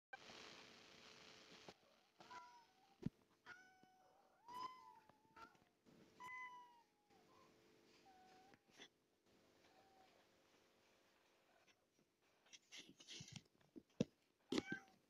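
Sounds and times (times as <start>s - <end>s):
cat meowing faintly: 2.2s - 8.9s.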